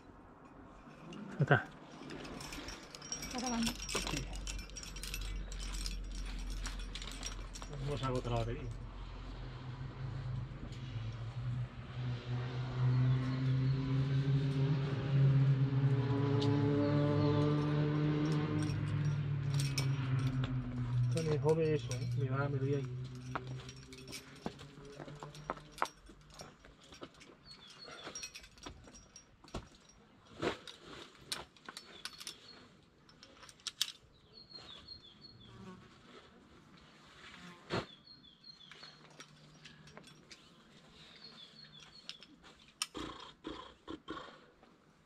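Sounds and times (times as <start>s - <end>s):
climbing gear clicks and scrapes: 0.4s - 8.8s, 18.2s - 35.4s, 38.2s - 43.2s.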